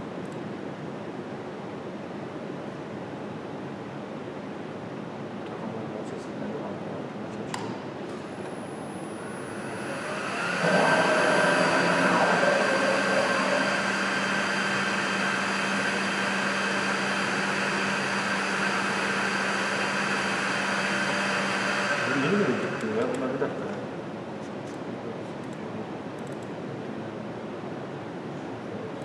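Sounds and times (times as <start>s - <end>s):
click: 0.2s - 0.5s, 7.5s - 7.8s, 26.2s - 26.5s
cnc router whining: 8.2s - 23.4s.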